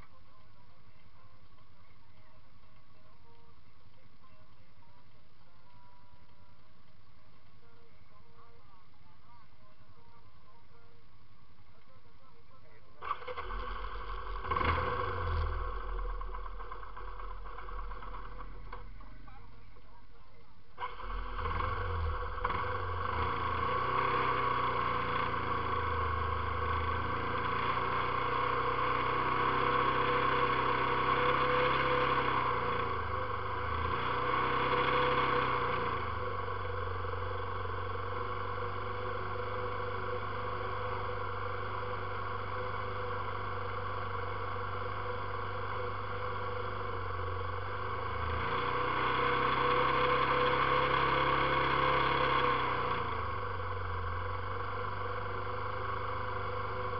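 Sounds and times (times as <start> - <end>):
atv engine revving: 13.0 - 19.5, 20.8 - 56.9.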